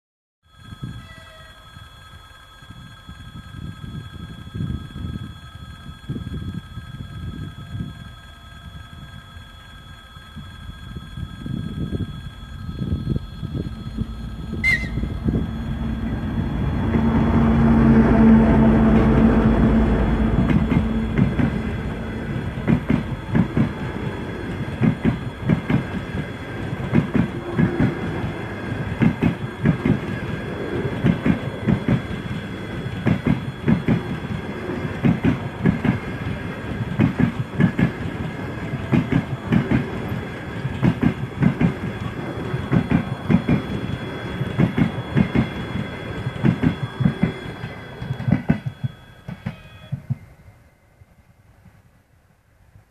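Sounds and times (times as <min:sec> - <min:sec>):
diesel locomotive engine: 0:00.5 - 0:52.9
steady train rumble: 0:00.6 - 0:52.9
train wheels clickety-clack: 0:14.5 - 0:50.4.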